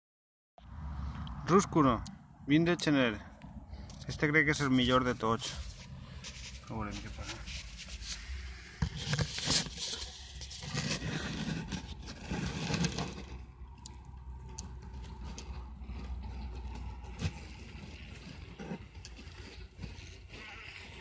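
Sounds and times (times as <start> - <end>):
scraping and clicking handling noises: 5.4 - 8.2, 8.8 - 21.0.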